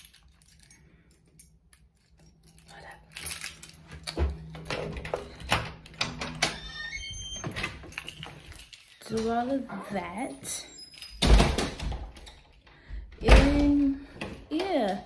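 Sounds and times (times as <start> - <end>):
objects clinking and rattling: 0.0 - 6.3, 7.8 - 9.8.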